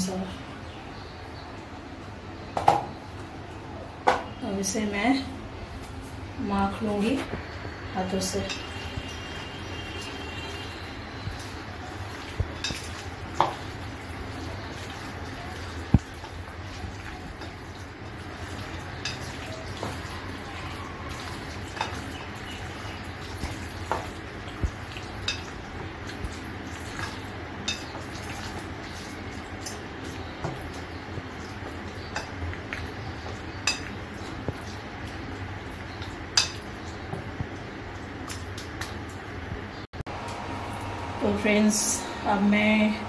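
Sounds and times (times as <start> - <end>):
wet hand mixing in bowl: 11.2 - 39.3.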